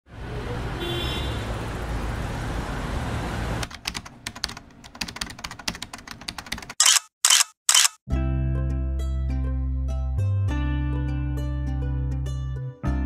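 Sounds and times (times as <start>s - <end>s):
low traffic rumble: 0.1s - 5.0s
typing on a computer keyboard: 3.6s - 7.9s.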